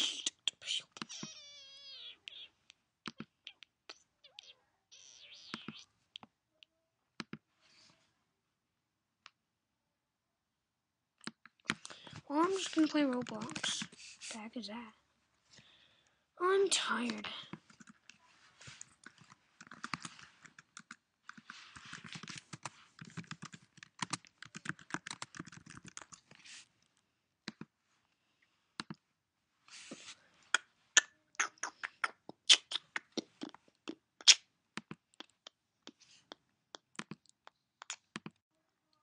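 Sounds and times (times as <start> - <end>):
computer keyboard typing: 19.1 - 26.2.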